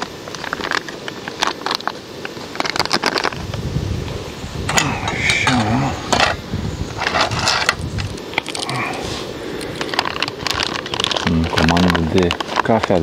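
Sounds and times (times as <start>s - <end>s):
low voice: 4.7s - 6.2s.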